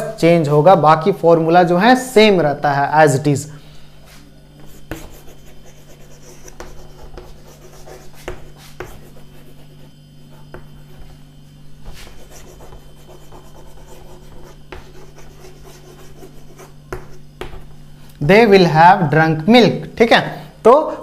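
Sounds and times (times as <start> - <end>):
chalk scratching on chalkboard: 4.0 - 17.8
chalk tapping: 4.1 - 11.2, 11.8 - 17.8.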